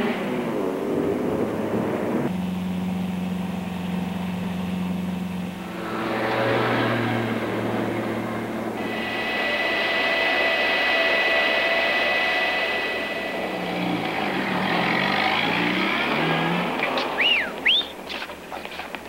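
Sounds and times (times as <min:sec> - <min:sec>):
low engine changing pitch: 0:00.0 - 0:18.1
jet engines whining: 0:00.0 - 0:18.5
airport traffic rush: 0:00.0 - 0:19.0
short rising-and-falling whistles: 0:17.1 - 0:18.0.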